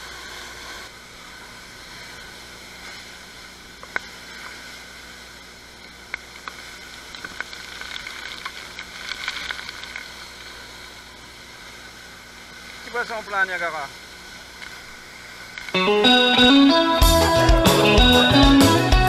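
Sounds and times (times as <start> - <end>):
crackly clicks: 5.8 - 10.9.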